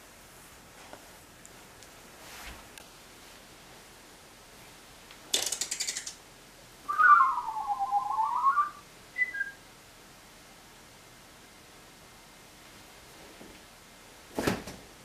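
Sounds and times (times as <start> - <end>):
rattle of clicks: 5.3 - 6.2
pulsing whistle: 6.9 - 9.6
short high whistle notes: 6.9 - 9.6.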